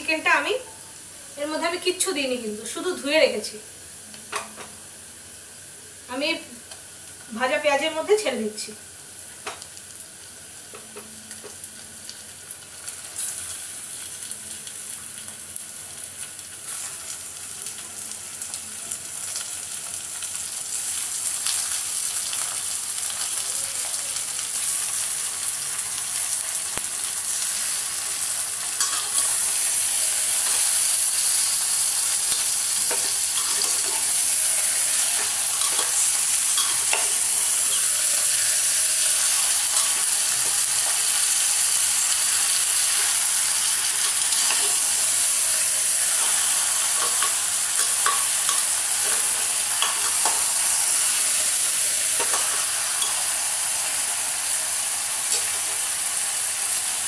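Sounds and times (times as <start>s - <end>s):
chicken sizzling in hot oil: 0.0s - 57.0s
spoon scraping a pan: 28.8s - 38.4s, 43.9s - 45.2s, 46.0s - 50.7s, 52.1s - 53.3s.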